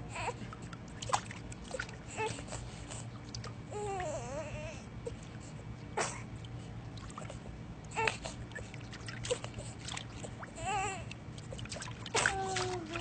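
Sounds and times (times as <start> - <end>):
pool water lapping: 0.0 - 13.0
small splashes: 0.5 - 4.2, 6.0 - 13.0
baby high wavering vocal: 12.2 - 13.0.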